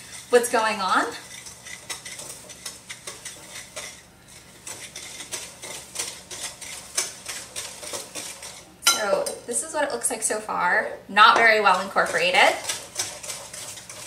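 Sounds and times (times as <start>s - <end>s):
whisk scraping glass bowl: 0.0s - 9.4s, 11.4s - 14.0s.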